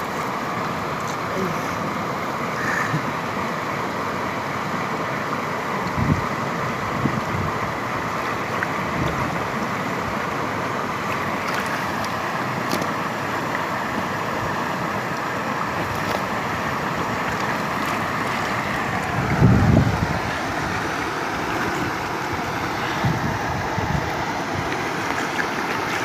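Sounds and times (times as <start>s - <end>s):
river water rushing past rocks: 0.0s - 26.0s.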